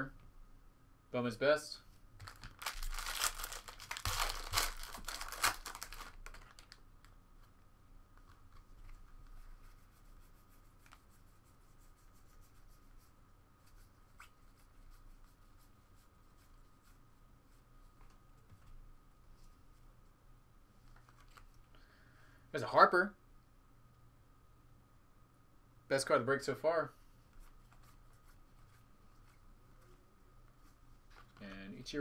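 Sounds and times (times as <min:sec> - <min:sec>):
foil wrapper tearing and crinkling: 0:02.2 - 0:06.8.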